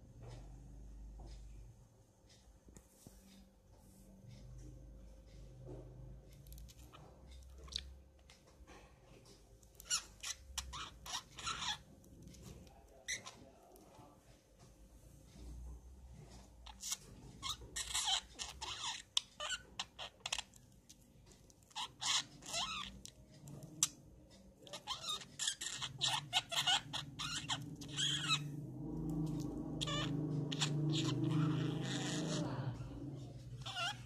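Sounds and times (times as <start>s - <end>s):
budgerigar chattering: 24.7s - 28.5s, 29.7s - 32.6s, 33.6s - 34.0s.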